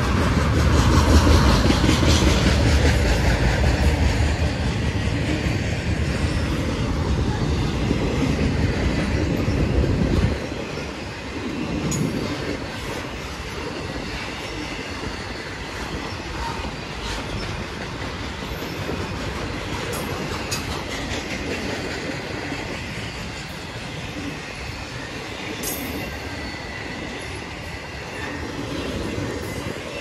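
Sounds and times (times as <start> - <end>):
freight train cars rolling past: 0.0 - 30.0
wheels clattering over rail joints: 15.4 - 24.4.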